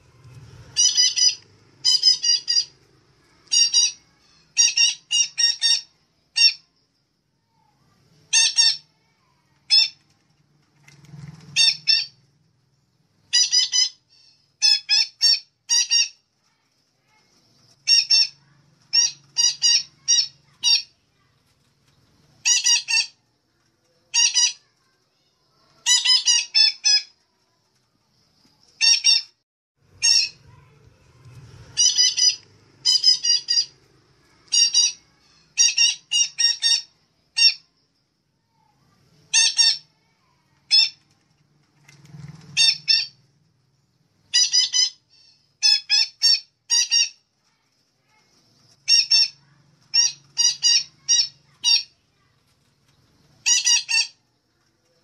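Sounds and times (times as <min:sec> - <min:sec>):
parrot calling: 0:00.7 - 0:02.7, 0:03.4 - 0:06.7, 0:08.3 - 0:08.9, 0:13.3 - 0:16.2, 0:17.8 - 0:21.0, 0:22.4 - 0:23.2, 0:25.8 - 0:27.1, 0:30.0 - 0:30.7, 0:31.8 - 0:33.8, 0:34.4 - 0:37.7, 0:39.3 - 0:39.9, 0:42.6 - 0:43.2, 0:44.3 - 0:47.2, 0:48.8 - 0:51.9, 0:53.4 - 0:54.2.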